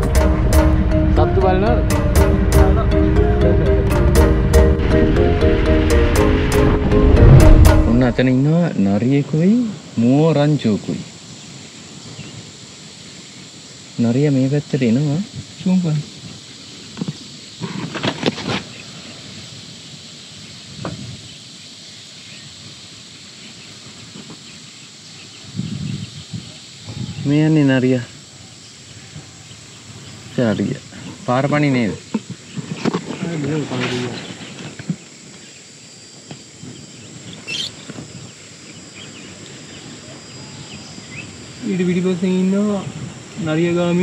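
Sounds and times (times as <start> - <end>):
high insect drone: 0.0 - 44.0
outdoor hiss: 0.0 - 44.0
bird chirp: 36.6 - 41.4.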